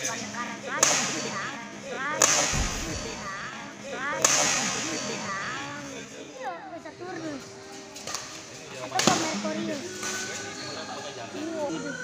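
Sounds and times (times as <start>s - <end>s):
racket striking shuttlecock: 2.2s - 2.8s.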